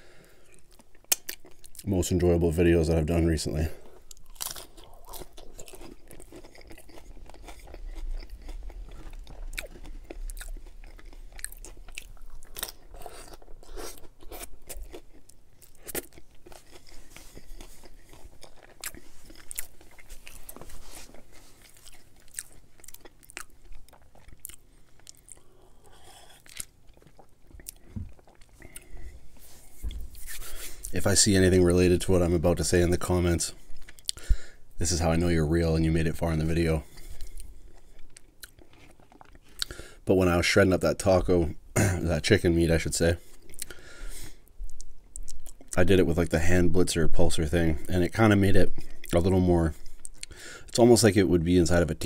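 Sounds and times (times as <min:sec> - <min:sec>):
crunchy taco chewing: 0:00.2 - 0:02.2, 0:03.5 - 0:40.0, 0:43.2 - 0:45.9.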